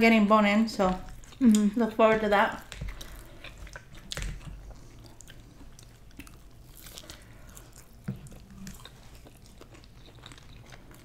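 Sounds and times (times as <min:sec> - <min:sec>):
chewing and biting food: 0:01.0 - 0:01.8, 0:02.5 - 0:11.0.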